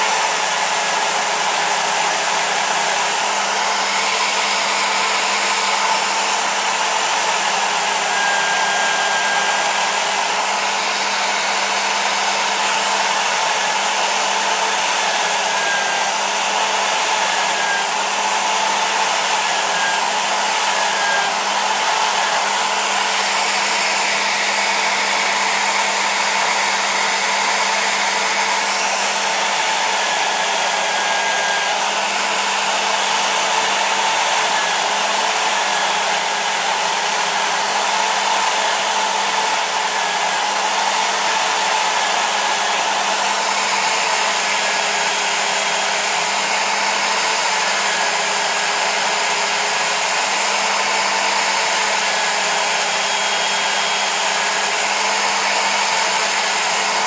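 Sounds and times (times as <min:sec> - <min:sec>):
bolt buffed on polishing wheel: 0:00.0 - 0:57.0
electric drill motor whirring: 0:00.0 - 0:57.0.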